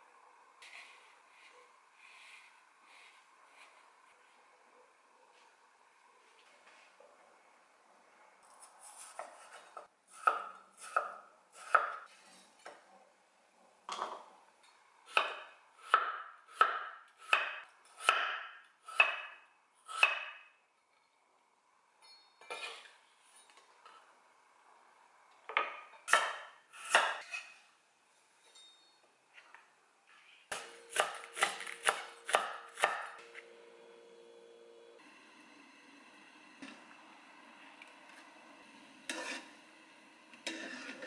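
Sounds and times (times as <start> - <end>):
knife slicing potato: 30.5 - 33.1.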